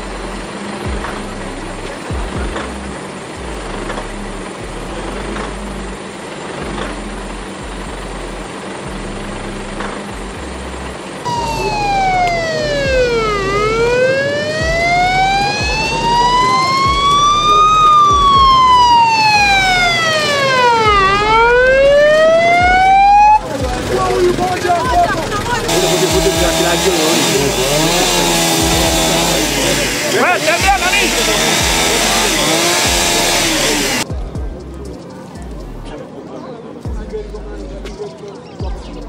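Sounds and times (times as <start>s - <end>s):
steady background noise: 0.0s - 39.0s
ambulance siren wailing: 11.2s - 34.0s.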